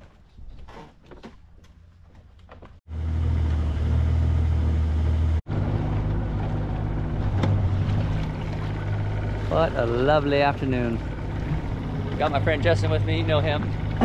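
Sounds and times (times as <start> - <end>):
outboard motor droning: 2.9 - 14.0.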